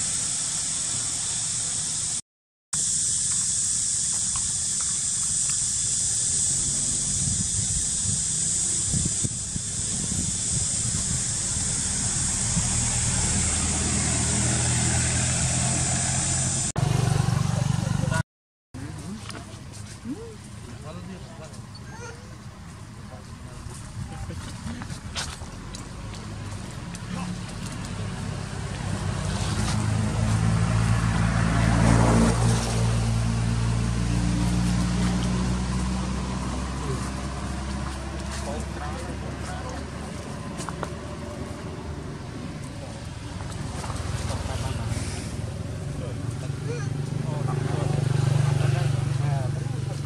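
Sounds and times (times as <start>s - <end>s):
constant high hiss: 0.0s - 2.2s, 2.8s - 16.8s
motor engine running: 2.8s - 18.2s, 18.8s - 50.0s.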